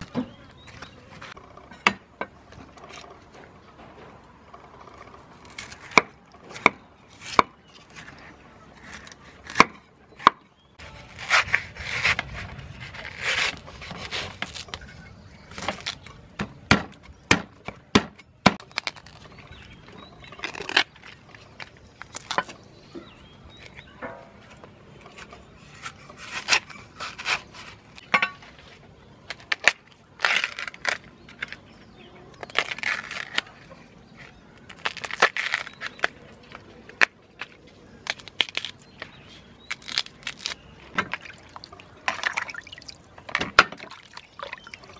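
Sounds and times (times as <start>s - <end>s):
husks being torn off: 34.6s - 36.3s.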